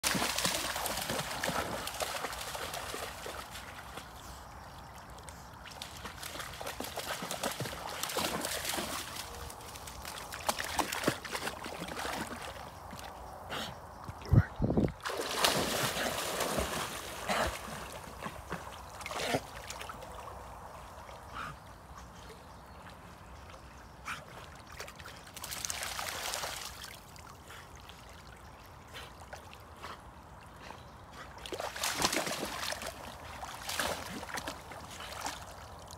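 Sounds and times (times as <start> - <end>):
dogs splashing in water: 0.0 - 4.2, 5.6 - 13.1, 15.0 - 20.4, 24.4 - 27.1, 31.4 - 35.7.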